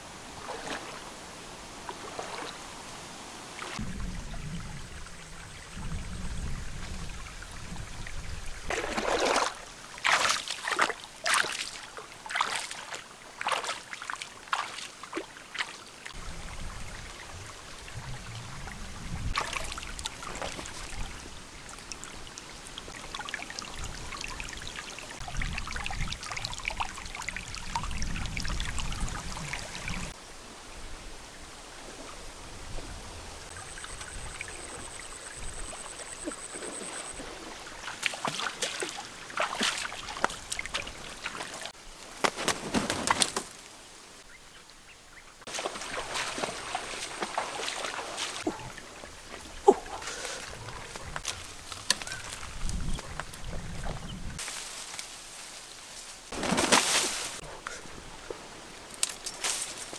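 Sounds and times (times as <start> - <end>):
stream trickling over rocks: 0.2 - 30.3, 32.5 - 42.2, 45.4 - 54.4
splashing through water: 0.4 - 1.1, 1.8 - 2.6, 8.6 - 16.2, 18.6 - 22.2, 35.6 - 43.6, 45.5 - 53.0, 56.3 - 57.4.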